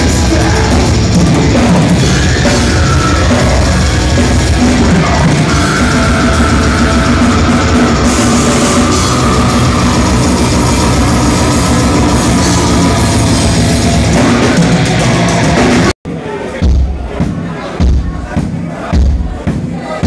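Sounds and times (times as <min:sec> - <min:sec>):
heavy metal band playing live: 0:00.0 - 0:19.5.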